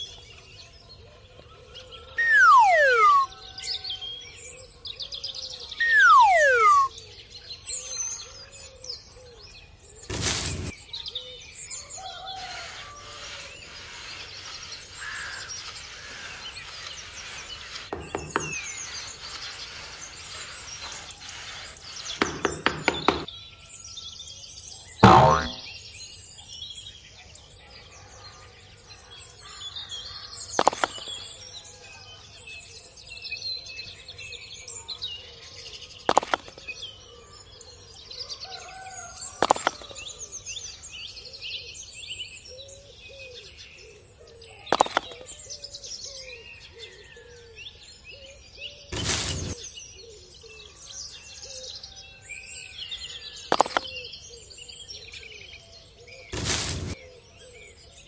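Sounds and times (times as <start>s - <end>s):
birds chirping and singing: 2.2s - 4.3s, 8.9s - 24.3s.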